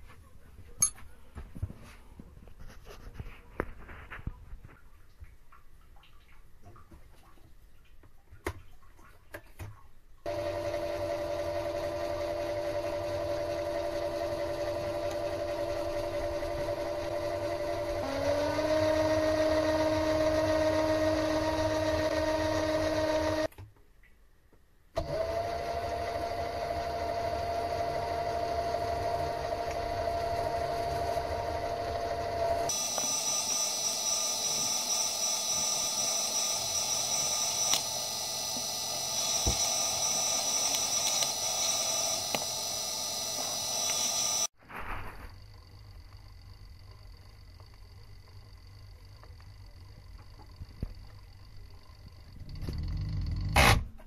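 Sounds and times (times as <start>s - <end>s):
lathe motor whining: 10.3s - 23.5s, 25.0s - 44.6s.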